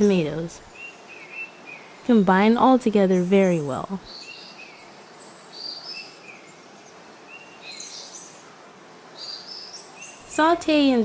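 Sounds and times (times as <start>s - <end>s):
steady faint hiss: 0.0s - 11.0s
small bird chirping: 3.0s - 8.5s, 9.2s - 10.8s.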